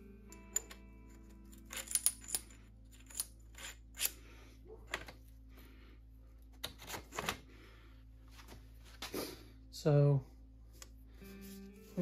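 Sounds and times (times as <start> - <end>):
metal bike parts clicking: 1.5 - 4.2.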